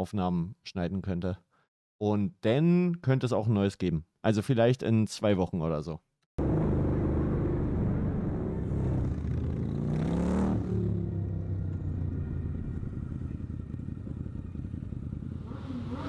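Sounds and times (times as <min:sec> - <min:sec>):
motorcycle revving up: 0:06.4 - 0:16.0
motorcycles rumbling past: 0:06.4 - 0:16.0.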